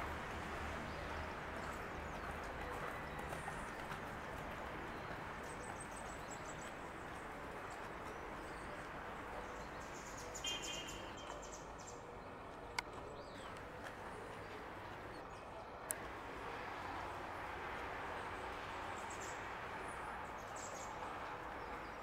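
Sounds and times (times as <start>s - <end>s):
birds chirping: 0.9s - 16.0s.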